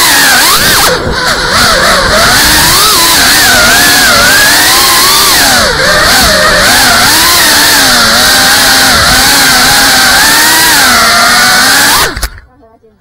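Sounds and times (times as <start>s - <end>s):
drone motors whining: 0.0s - 12.5s
wind rush: 0.3s - 7.1s.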